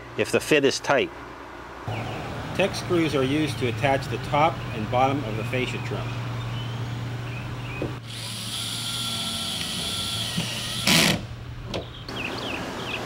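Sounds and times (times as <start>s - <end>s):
cordless drill whining: 8.0s - 11.2s.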